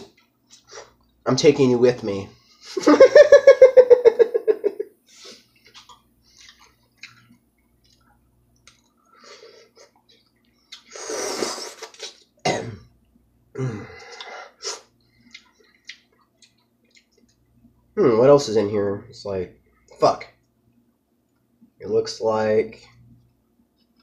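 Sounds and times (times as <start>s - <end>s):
person chewing: 5.2s - 12.3s, 13.9s - 17.7s
person slurping noodles: 10.8s - 12.3s
person coughing: 12.4s - 12.9s.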